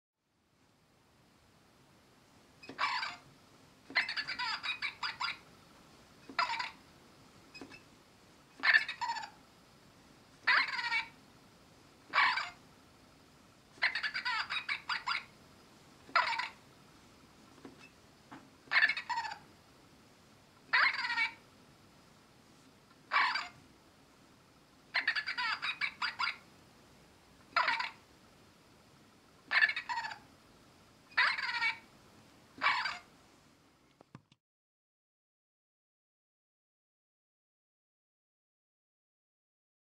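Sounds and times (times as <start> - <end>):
squeaky toy squeaking: 2.6 - 3.2, 3.9 - 5.4, 6.3 - 6.8, 8.6 - 9.4, 10.5 - 11.1, 12.1 - 12.6, 13.8 - 15.3, 16.1 - 16.6, 18.7 - 19.4, 20.7 - 21.4, 23.1 - 23.6, 25.0 - 26.4, 27.6 - 28.0, 29.5 - 30.2, 31.1 - 31.8, 32.6 - 33.1.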